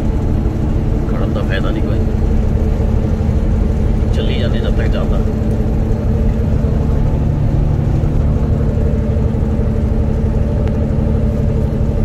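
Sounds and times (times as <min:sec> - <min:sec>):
truck engine and road noise drone: 0:00.0 - 0:12.0.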